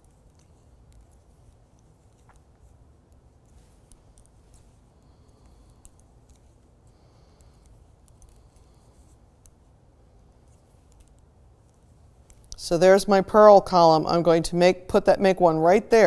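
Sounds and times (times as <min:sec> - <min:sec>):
knitting needles clicking: 0:00.0 - 0:09.6, 0:10.4 - 0:12.6
low room hum: 0:00.0 - 0:16.0.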